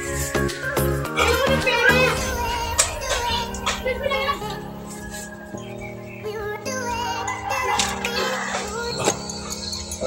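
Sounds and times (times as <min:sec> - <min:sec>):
held chords: 0:00.0 - 0:10.0
high wavering melody: 0:00.0 - 0:10.0.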